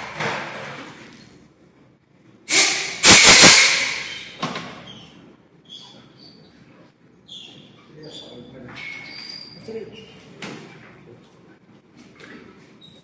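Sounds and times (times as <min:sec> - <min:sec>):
hiss of rushing air: 0:02.5 - 0:04.0.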